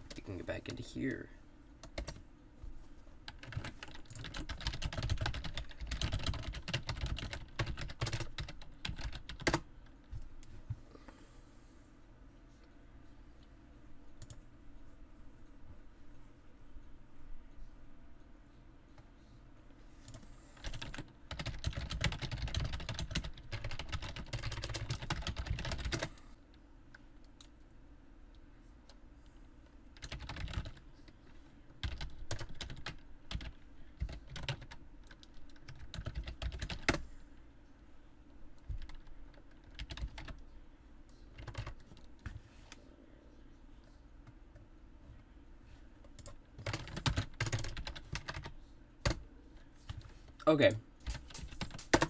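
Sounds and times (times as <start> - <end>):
typing on computer keyboard: 3.3 - 9.6, 20.1 - 26.2, 30.0 - 30.8, 31.8 - 37.0, 38.7 - 40.4, 41.4 - 42.0, 46.2 - 49.2, 51.0 - 52.0.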